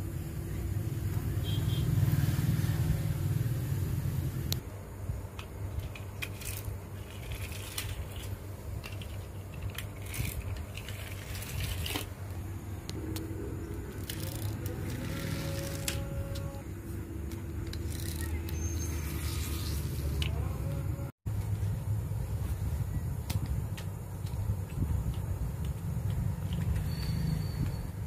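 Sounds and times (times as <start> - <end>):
toy vehicles rolling on table: 5.7 - 12.2, 13.9 - 16.6.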